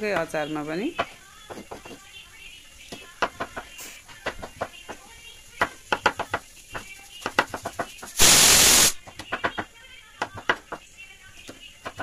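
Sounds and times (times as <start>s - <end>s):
burst of hiss: 8.0s - 9.0s.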